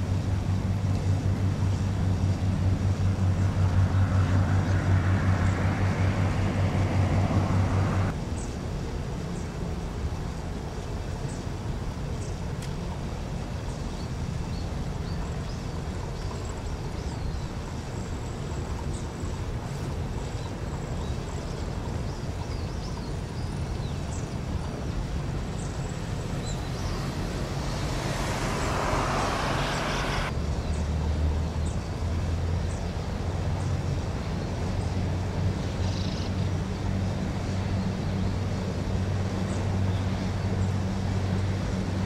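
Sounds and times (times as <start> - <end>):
low rumble: 0.4 - 8.1
small birds chirping: 13.5 - 30.9, 32.6 - 41.6
hiss: 27.0 - 30.3.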